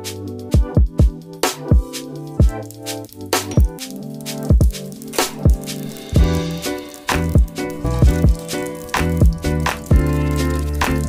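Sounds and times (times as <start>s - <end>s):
instrumental music: 0.0s - 11.0s
deep kick drums: 0.6s - 2.6s, 6.2s - 6.6s, 7.2s - 10.1s.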